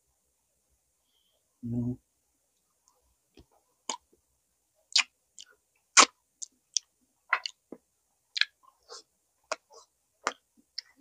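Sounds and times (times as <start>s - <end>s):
chewing and biting mouth sounds: 8.3s - 11.0s.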